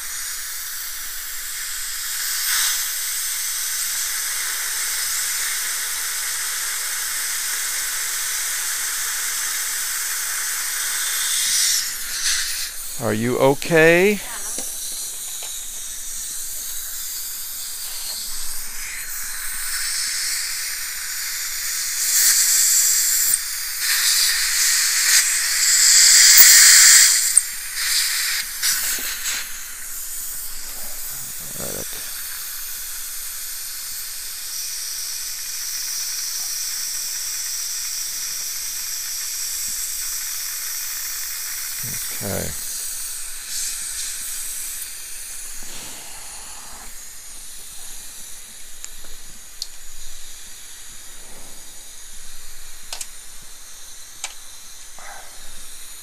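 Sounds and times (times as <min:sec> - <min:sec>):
dental suction hissing: 0:00.0 - 0:56.0.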